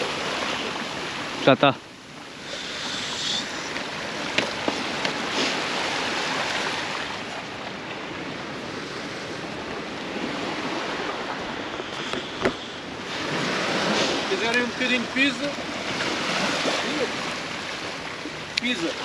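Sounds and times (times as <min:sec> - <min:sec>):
sea surf breaking on beach: 0:00.0 - 0:19.0.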